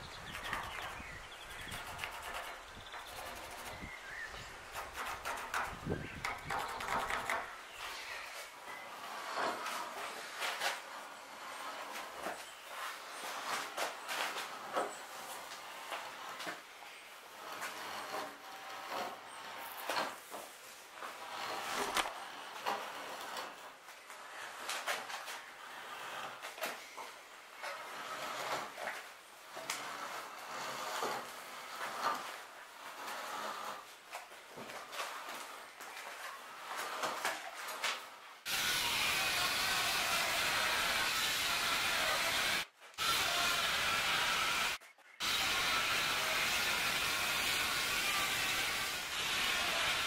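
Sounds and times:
wooden knocks and scrapes: 0.0 - 16.7, 17.3 - 38.2
electric planer cutting wood: 38.5 - 50.0.

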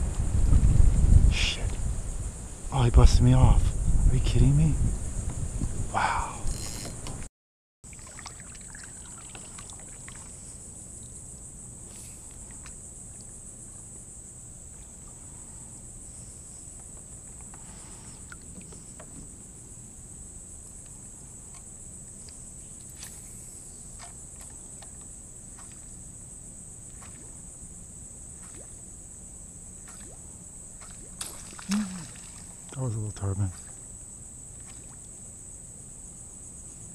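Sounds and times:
high-pitched insect buzz: 6.1 - 7.2, 22.1 - 32.8.

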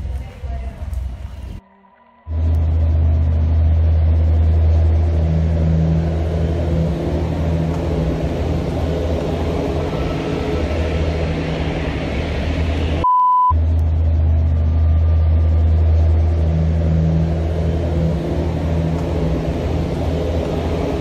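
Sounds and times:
low rumble with hiss: 0.0 - 1.6, 2.3 - 13.0, 13.6 - 21.0
short beep: 13.0 - 13.6.

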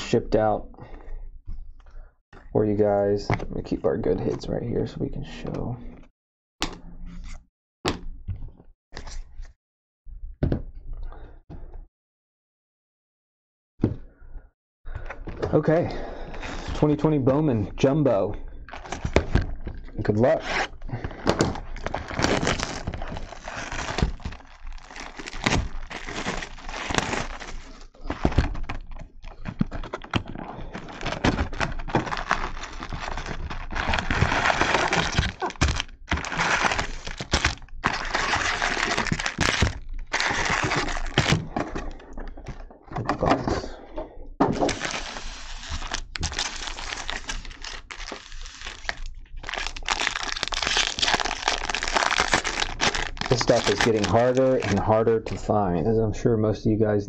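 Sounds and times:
foil wrappers crinkling: 18.7 - 19.4, 20.9 - 41.7, 44.6 - 55.0
cardboard tearing: 20.3 - 41.7, 44.5 - 54.9.

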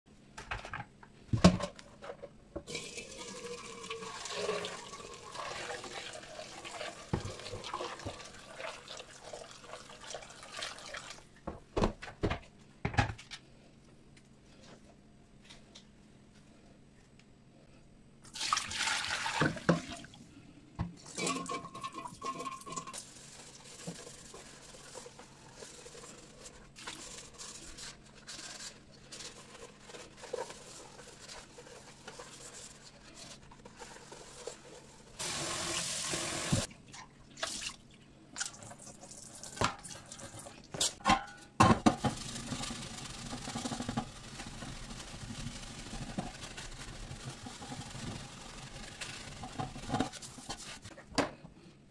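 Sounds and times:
brush scrubbing: 22.9 - 35.2, 42.2 - 50.9
sponge scrubbing: 22.9 - 35.4, 42.2 - 50.9
water splashing into metal sink: 35.2 - 37.8.

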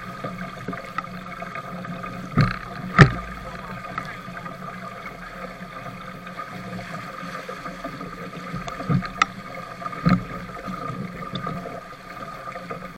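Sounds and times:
rushing water: 0.0 - 12.9
wind: 0.0 - 12.9.

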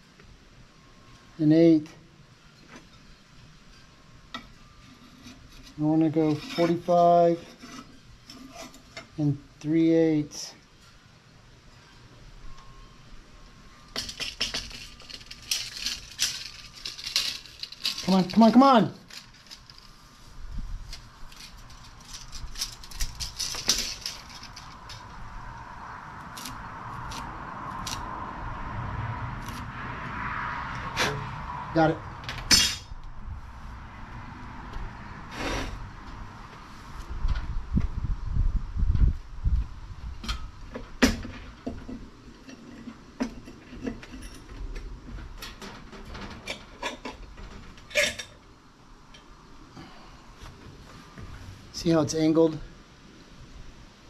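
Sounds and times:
tape measure clicking and rattling: 14.0 - 19.9, 20.9 - 25.1.

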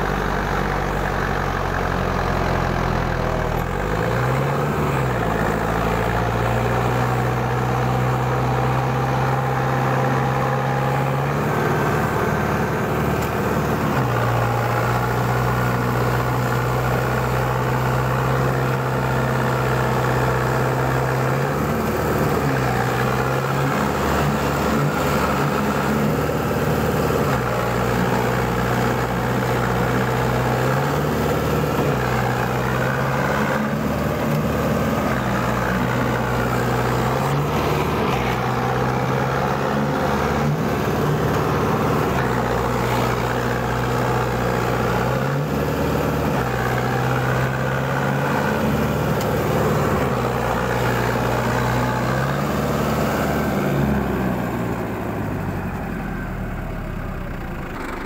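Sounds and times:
tractor diesel engine running hard: 0.0 - 58.0.

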